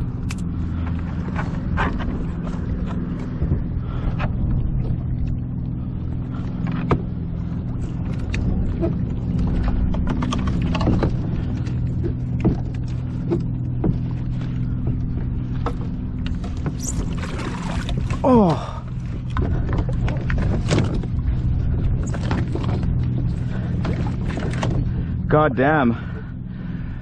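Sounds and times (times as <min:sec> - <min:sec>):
low mechanical hum: 0:00.0 - 0:27.0
fish splashing against kayak: 0:09.4 - 0:21.2.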